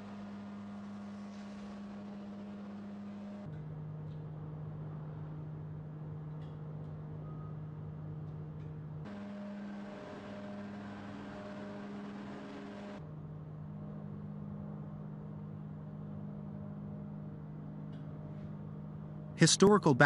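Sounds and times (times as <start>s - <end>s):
machinery humming: 0.0s - 3.5s, 9.1s - 13.0s, 19.4s - 20.0s.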